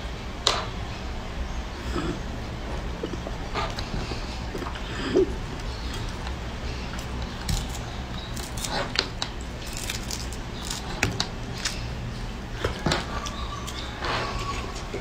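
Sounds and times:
steady low hum: 0:00.0 - 0:15.0
rinds cracking and peeling: 0:03.0 - 0:15.0.

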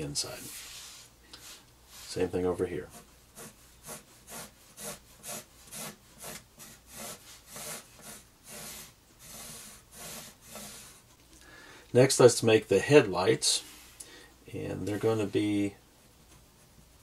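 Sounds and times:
pencil rubbing on paper: 0:00.4 - 0:11.2.

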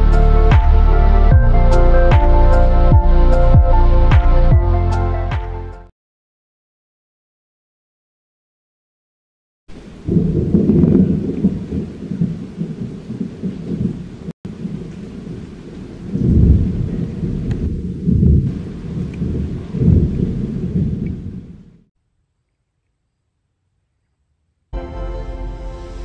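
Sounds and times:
rain falling: 0:09.7 - 0:21.5
thunder rolling: 0:09.7 - 0:21.8.

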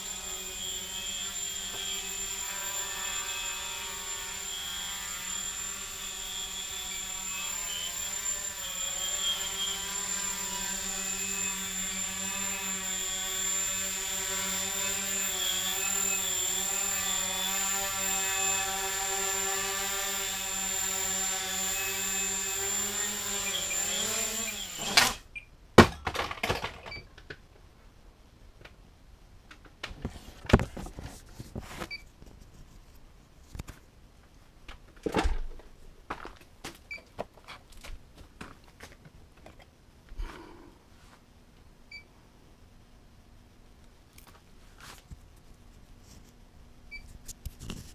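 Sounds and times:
quadcopter motors buzzing: 0:00.0 - 0:25.2.

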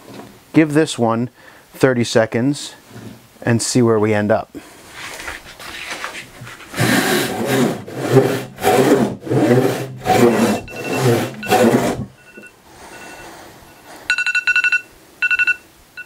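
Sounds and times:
hand saw rasping through wood: 0:06.6 - 0:12.1.

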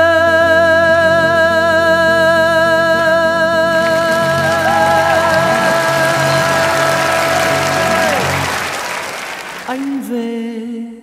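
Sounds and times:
man singing long note: 0:00.0 - 0:08.4, 0:09.7 - 0:11.0
audience applause: 0:03.7 - 0:10.2.

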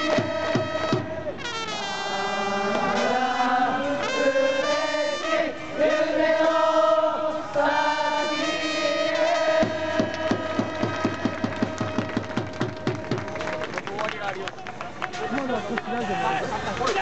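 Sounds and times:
fans chanting and singing: 0:00.0 - 0:12.2
trumpets playing cheer melody: 0:00.0 - 0:13.5.

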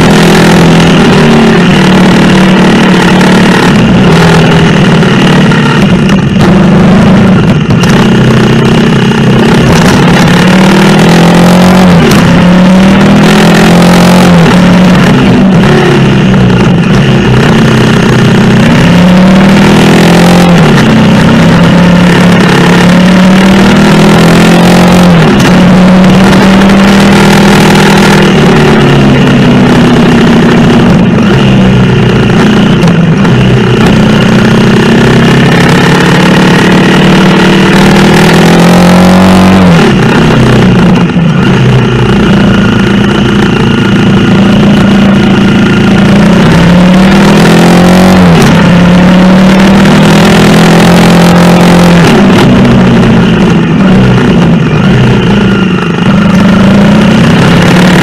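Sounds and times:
motorcycle engine revving: 0:00.0 - 0:58.0
wind and road noise: 0:00.0 - 0:58.0.

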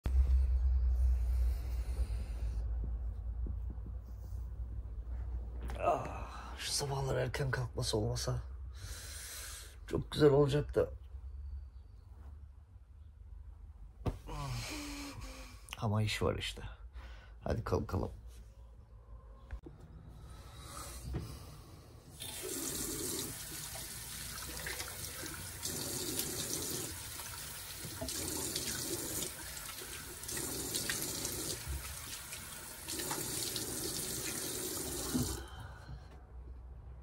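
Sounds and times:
tap water running: 0:22.1 - 0:35.6.

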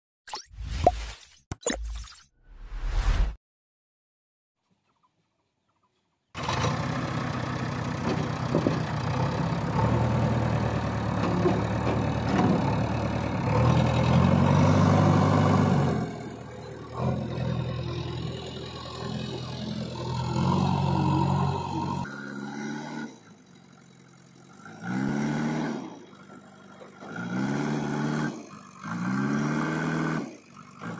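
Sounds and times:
diesel engine running: 0:06.4 - 0:30.9.

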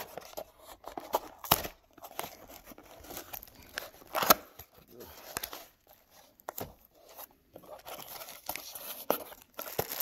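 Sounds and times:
packaging rustles and taps: 0:07.5 - 0:10.0.

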